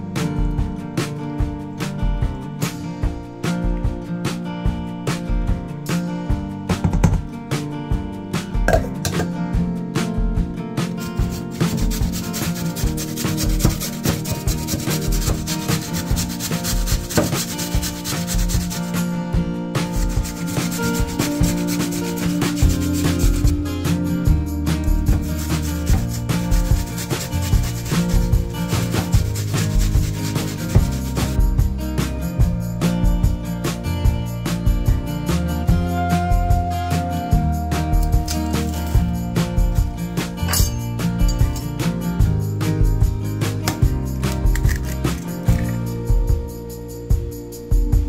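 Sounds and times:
background music with steady beat: 0.0 - 48.0
potato grating on metal grater: 11.1 - 18.9, 19.9 - 23.6, 25.1 - 31.4.

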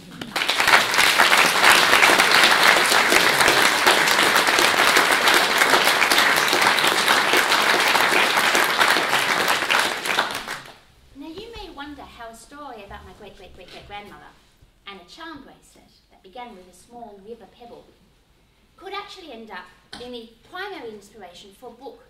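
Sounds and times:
audience applauding: 0.0 - 11.6.

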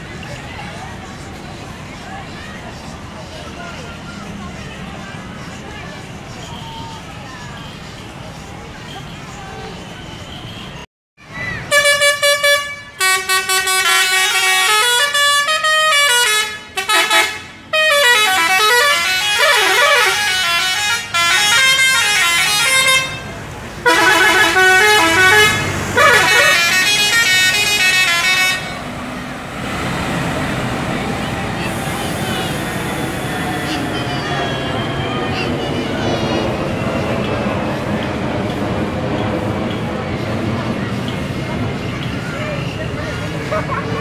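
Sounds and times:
multi-tone bus horn melodies: 11.7 - 37.4.

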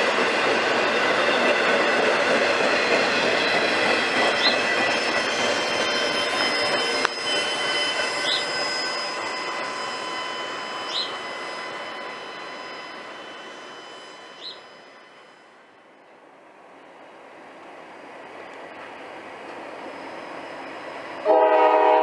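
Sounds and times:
freight train rolling past: 0.0 - 22.0
wheels squealing: 0.2 - 15.4.

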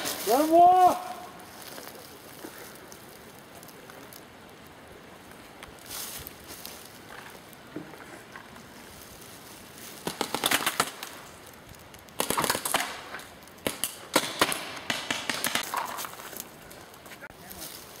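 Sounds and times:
paintball markers firing: 10.0 - 11.1, 12.1 - 16.0.

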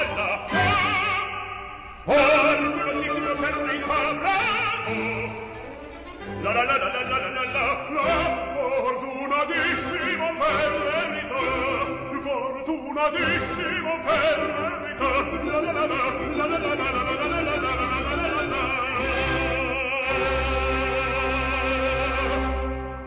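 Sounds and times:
operatic singing with vibrato: 0.0 - 23.0.

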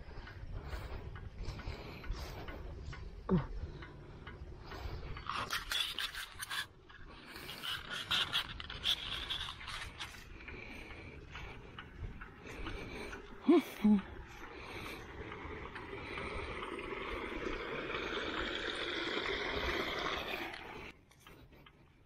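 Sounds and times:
scraping noises: 5.0 - 11.0.

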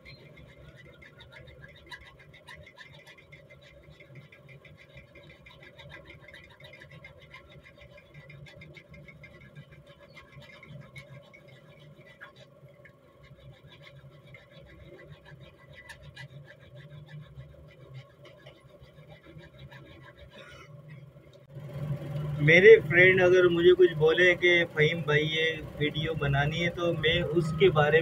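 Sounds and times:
file rasping on steel: 0.0 - 21.5.

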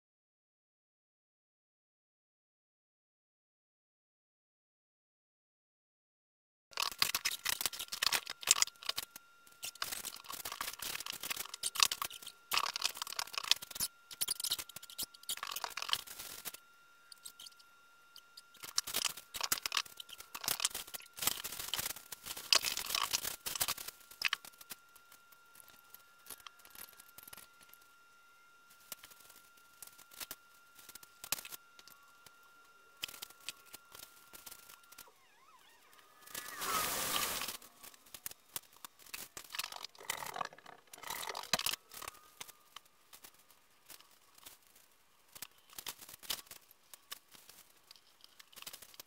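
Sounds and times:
plastic packaging rustling: 36.3 - 49.0.

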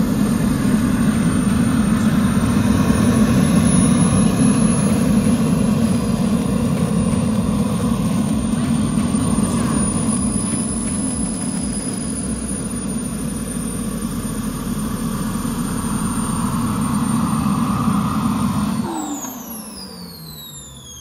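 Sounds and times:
jet turbine engines whining: 0.0 - 21.0.

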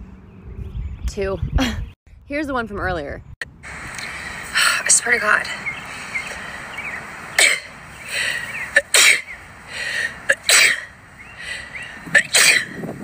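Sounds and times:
sharp breath in: 8.0 - 8.6, 9.7 - 10.2, 11.4 - 12.0
woman sneezing: 12.2 - 12.7.

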